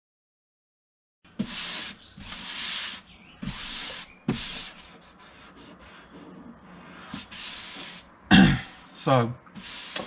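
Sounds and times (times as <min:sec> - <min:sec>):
palms rubbing over fiberglass: 0:01.4 - 0:08.1, 0:09.6 - 0:10.0.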